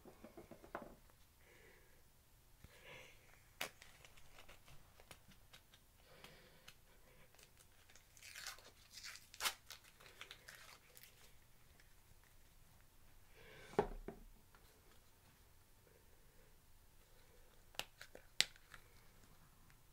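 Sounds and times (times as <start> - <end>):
crinkly crackling: 3.3 - 12.9.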